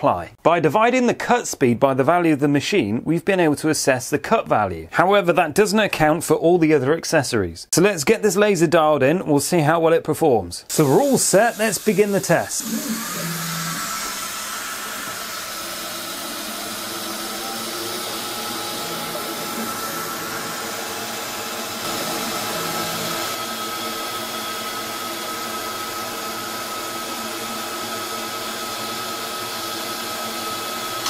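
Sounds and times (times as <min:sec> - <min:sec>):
steady high whine: 0:12.6 - 0:26.2
laser cutter hum: 0:12.6 - 0:31.0.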